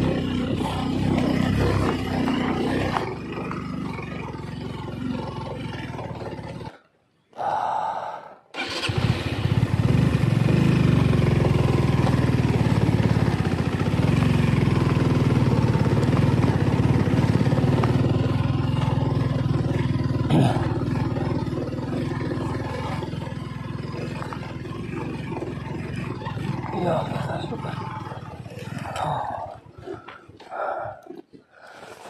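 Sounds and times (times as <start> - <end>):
motorcycle engine under load: 0.0 - 7.0, 8.5 - 32.0.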